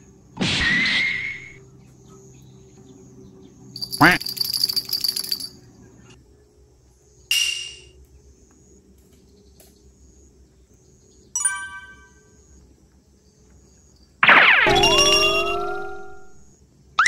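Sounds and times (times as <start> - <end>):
bright chime: 14.7 - 16.4.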